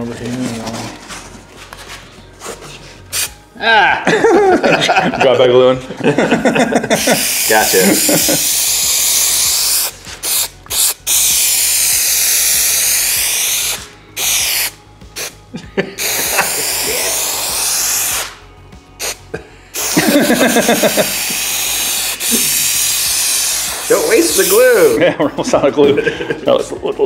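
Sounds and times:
aerosol spray hissing: 3.1 - 3.4, 6.9 - 15.4, 16.0 - 25.0.

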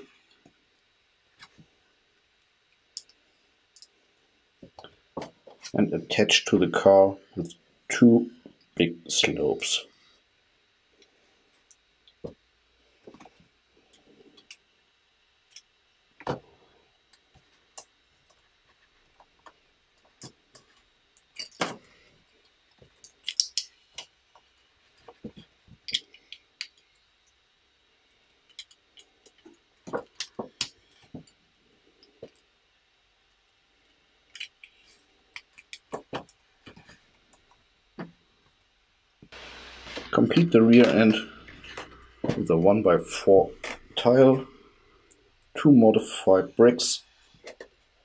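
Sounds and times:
plastic bricks clicking: 23.0 - 23.7
sharp plastic snaps: 23.1 - 24.1.

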